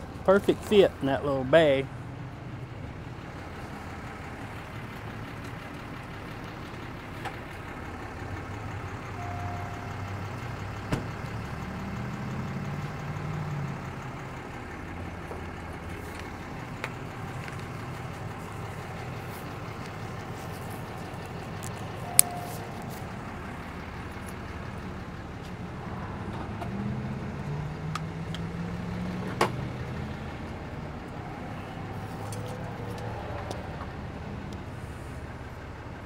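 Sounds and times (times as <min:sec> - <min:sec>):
vehicle engines idling: 0:00.0 - 0:36.0
engine revving as vehicle pulls away: 0:07.8 - 0:35.5
short beep: 0:09.2 - 0:10.0, 0:22.0 - 0:22.7.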